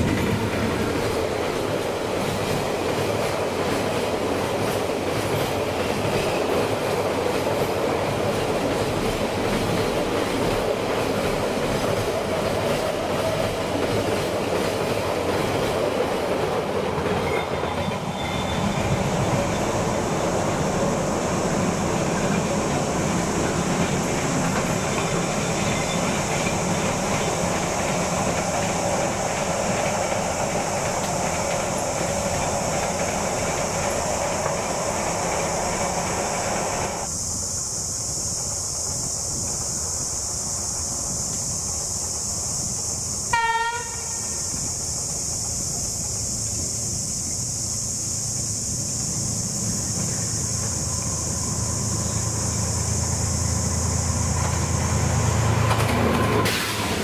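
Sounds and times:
diesel locomotive passing: 0:00.0 - 0:57.0
train rumble with high hiss: 0:00.0 - 0:57.0
wheels clattering over rail joints: 0:53.6 - 0:57.0.

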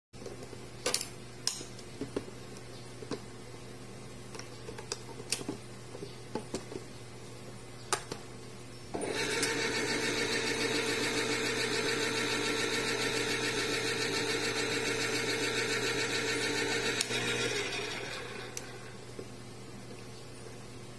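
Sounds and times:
can opener motor whirring: 0:09.0 - 0:19.1.

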